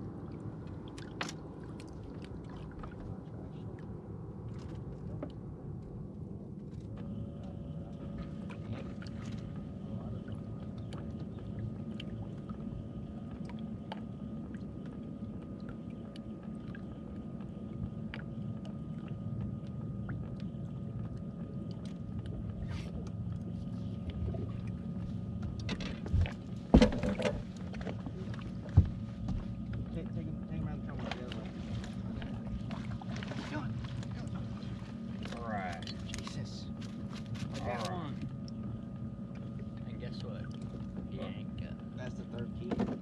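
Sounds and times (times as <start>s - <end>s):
electric motor hum with whine: 0.0s - 43.0s
knocks on boat deck: 25.8s - 27.5s, 28.7s - 29.5s, 42.6s - 43.0s.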